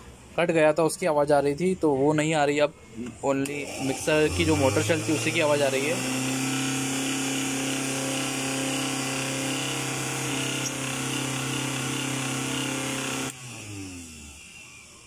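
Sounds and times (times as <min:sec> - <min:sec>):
mixer grinder motor humming: 0:03.4 - 0:15.0.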